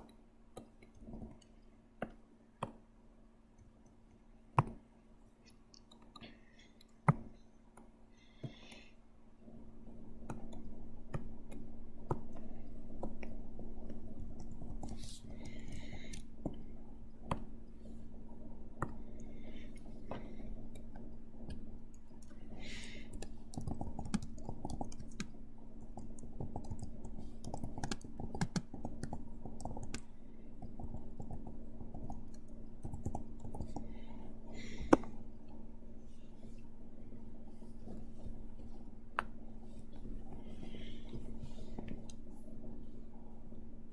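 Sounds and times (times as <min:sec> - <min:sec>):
low steady hum: 0:00.0 - 0:43.9
keyboard typing: 0:20.5 - 0:33.9.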